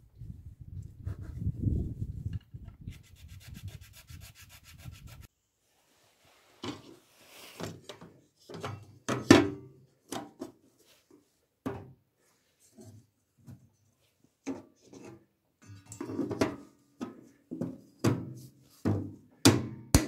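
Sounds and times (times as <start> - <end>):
hand file rubbing on plastic: 2.8 - 5.3.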